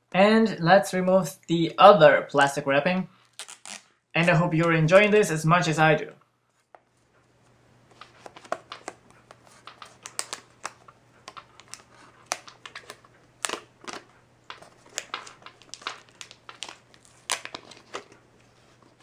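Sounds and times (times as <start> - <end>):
plastic film being peeled: 3.2 - 4.0, 8.0 - 19.0.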